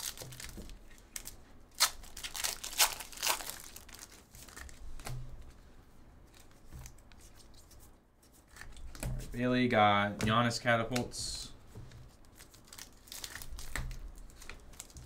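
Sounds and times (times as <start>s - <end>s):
foil wrapper tearing and crinkling: 0.0s - 4.8s, 12.3s - 15.0s
cards rustling: 0.0s - 5.6s, 12.1s - 15.0s.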